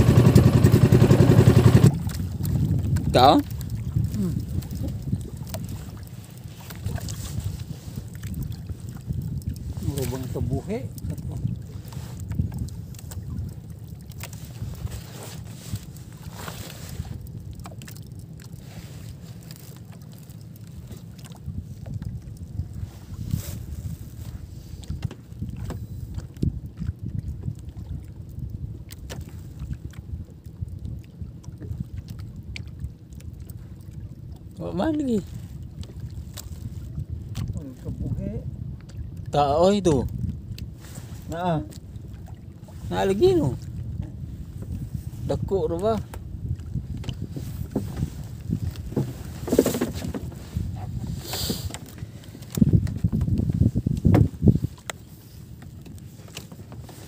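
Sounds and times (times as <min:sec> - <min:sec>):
low uneven rumble: 0:00.0 - 0:28.3
small water splashes: 0:00.0 - 0:39.4, 0:40.1 - 0:44.2
water slapping against boat hull: 0:00.0 - 0:57.0.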